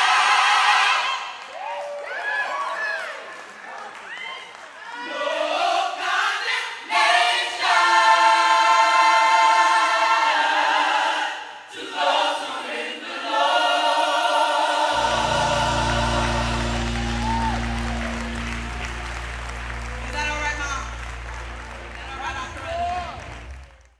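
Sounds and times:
gospel choir singing: 0.0s - 1.3s, 5.0s - 23.5s
low bass tone: 14.9s - 23.9s.

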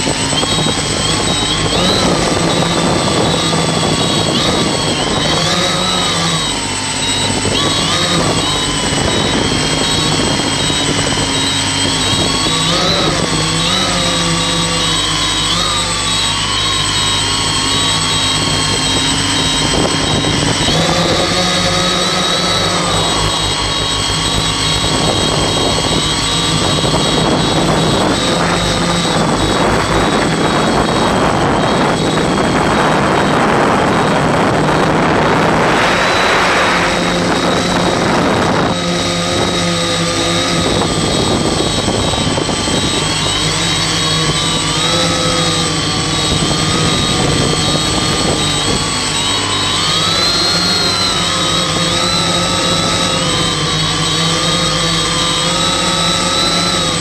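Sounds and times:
drone motors whining: 0.0s - 57.0s
wind noise: 0.0s - 57.0s.

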